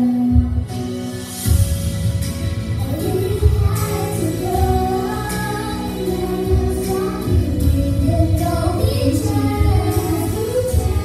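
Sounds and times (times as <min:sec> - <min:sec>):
instrumental music with bass and drums: 0:00.0 - 0:11.0
girls singing into microphones: 0:02.8 - 0:11.0.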